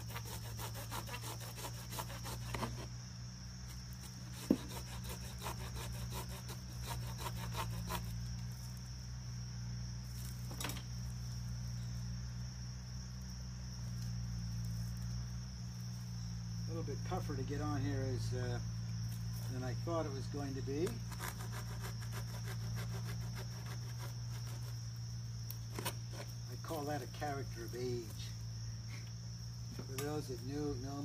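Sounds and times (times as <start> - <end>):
insect chorus: 0.0 - 31.0
clicking and rustling of branches: 29.0 - 30.5.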